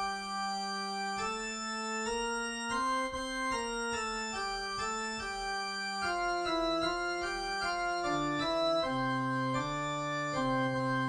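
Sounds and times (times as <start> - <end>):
organ music: 0.0 - 11.0.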